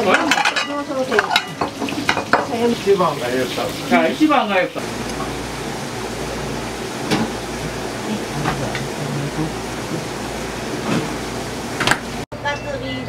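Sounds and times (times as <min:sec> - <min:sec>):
utensils clinking on plates: 0:00.0 - 0:03.7
low hum: 0:05.9 - 0:11.8.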